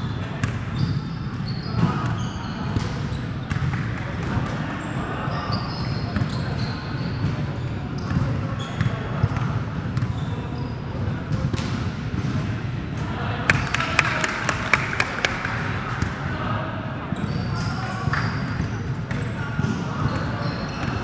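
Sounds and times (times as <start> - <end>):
hall noise: 13.5 - 16.4.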